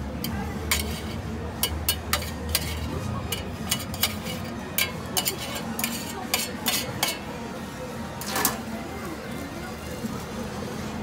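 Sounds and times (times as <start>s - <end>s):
metal tongs and spatula clinking: 0.2s - 7.3s.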